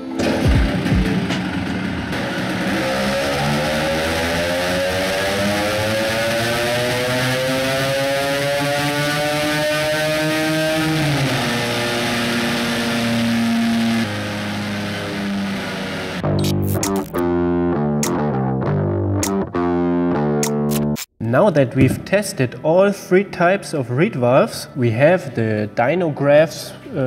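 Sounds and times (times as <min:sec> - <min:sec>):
scooter engine revving: 0:00.0 - 0:17.2.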